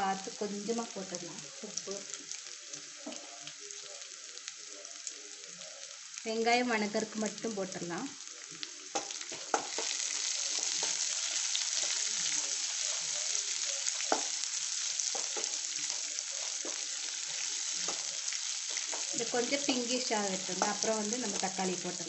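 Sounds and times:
onions sizzling in oil: 0.0s - 22.0s
spatula tapping and scraping pan: 8.9s - 10.0s, 10.6s - 11.1s, 14.0s - 14.4s, 15.0s - 16.9s.

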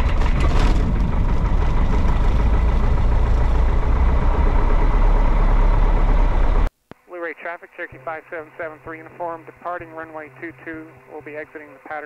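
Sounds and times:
aircraft engine and propeller idling: 0.0s - 6.7s.

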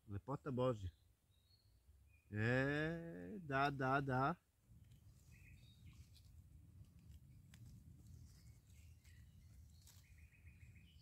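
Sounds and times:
faint bird chirps: 0.8s - 2.5s, 5.1s - 6.3s, 8.1s - 11.0s.

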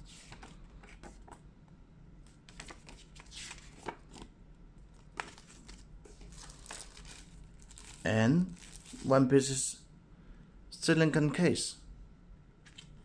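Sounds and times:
paper rustling: 2.5s - 4.3s, 5.0s - 9.2s.

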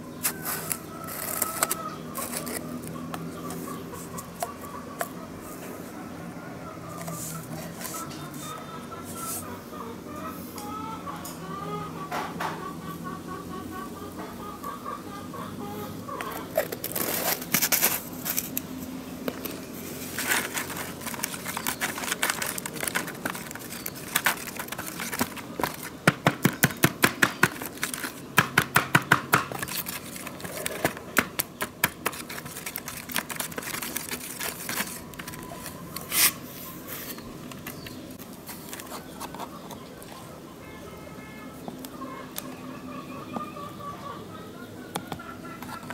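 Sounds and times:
stick pounding tomatoes in metal tray: 25.6s - 29.7s.

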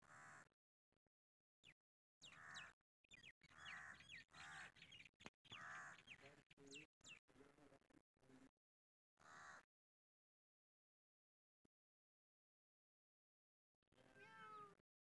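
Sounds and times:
crows cawing: 0.0s - 0.5s, 2.2s - 2.8s, 3.4s - 4.9s, 5.5s - 6.2s, 9.2s - 9.7s
small birds chirping: 1.6s - 7.8s.

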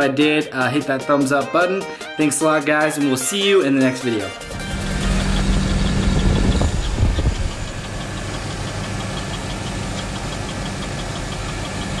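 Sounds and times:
engine running with rapid tick: 4.4s - 12.0s.

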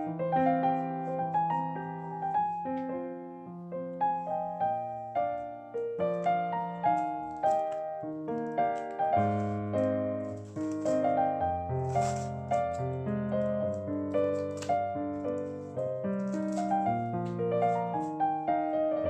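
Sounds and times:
solo piano music: 0.0s - 19.0s.

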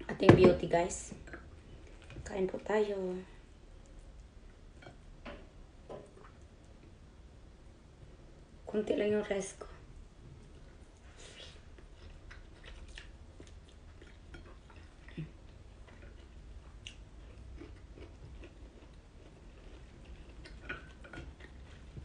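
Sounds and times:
low steady hum: 0.0s - 22.0s
person chewing food: 10.3s - 22.0s.

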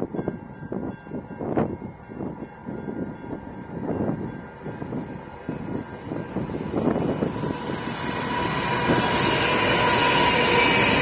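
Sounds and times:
diesel locomotives passing with whine: 0.0s - 11.0s.

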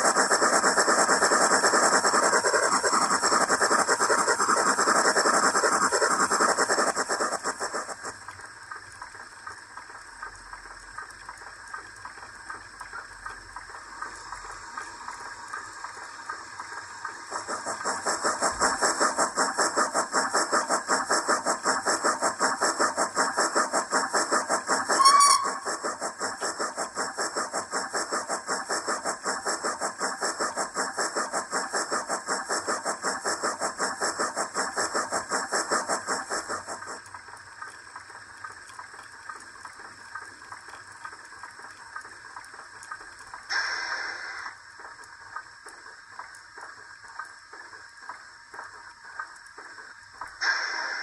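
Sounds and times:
steam locomotive chuffing: 0.0s - 9.2s, 10.6s - 40.3s, 42.8s - 51.0s
soft steam hiss: 0.0s - 51.0s
short whistle blast: 24.9s - 25.7s.

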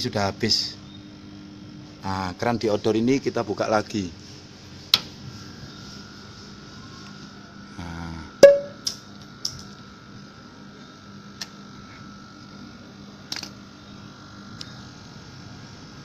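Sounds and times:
steady hum: 0.0s - 9.1s
sharp metallic clank: 8.4s - 8.9s.

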